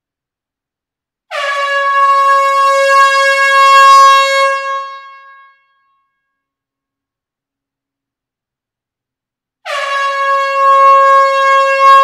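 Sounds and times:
air horn blast: 0:09.6 - 0:12.0.

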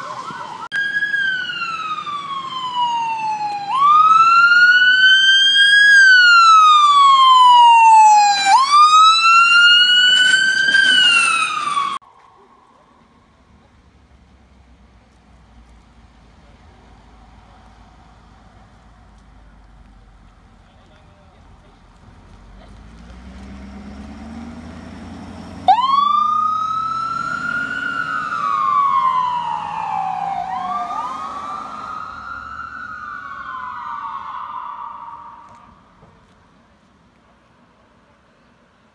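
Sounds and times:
ambulance siren wailing: 0:00.0 - 0:13.0, 0:25.3 - 0:36.0.

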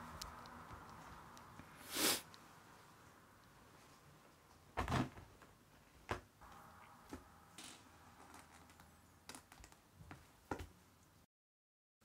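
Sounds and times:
short scrape: 0:01.8 - 0:02.3.

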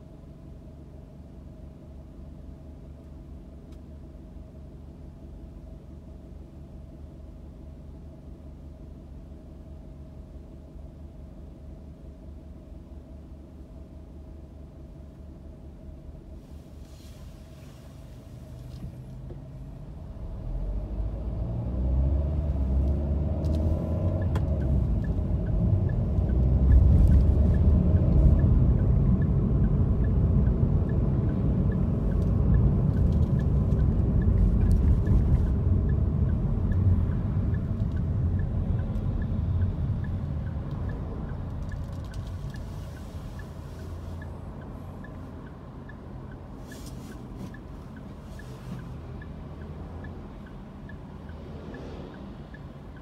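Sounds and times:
car engine and road noise: 0:00.0 - 0:53.0
faint regular ticking: 0:24.0 - 0:53.0.

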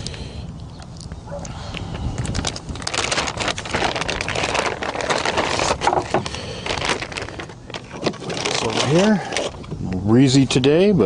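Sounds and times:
plastic bag crinkling: 0:02.1 - 0:09.8.

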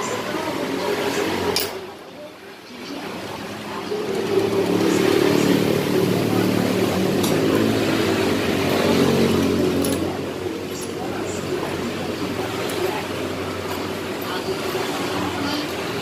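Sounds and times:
motorcycle engine running: 0:03.8 - 0:16.0.

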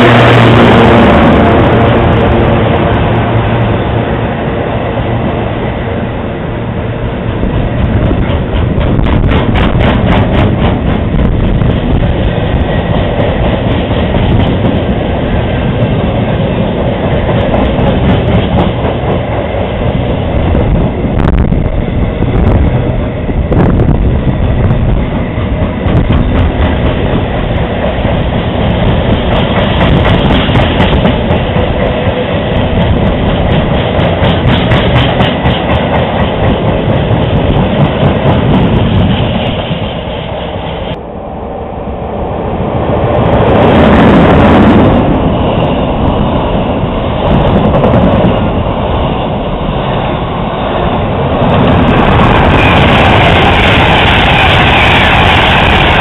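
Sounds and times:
freight train passing: 0:00.0 - 0:56.0.

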